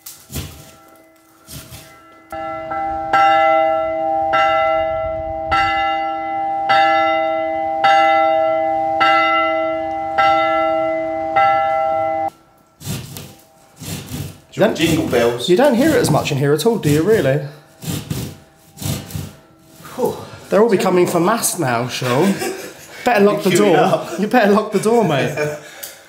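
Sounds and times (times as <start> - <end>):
church bell ringing: 0.4 - 12.8, 18.4 - 22.7.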